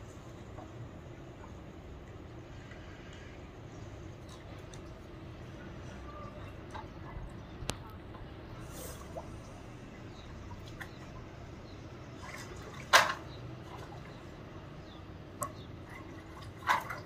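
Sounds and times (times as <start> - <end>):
water splashing and dripping: 4.1 - 14.4, 15.3 - 17.0.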